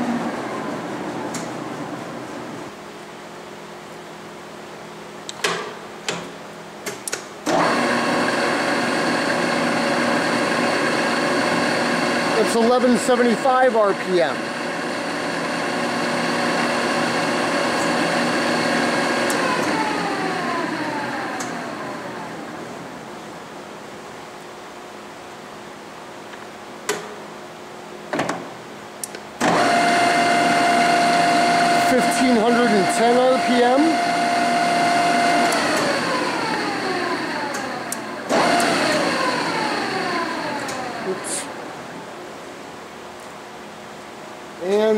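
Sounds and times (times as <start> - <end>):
drill press gear whine: 7.5 - 22.8, 29.4 - 41.8.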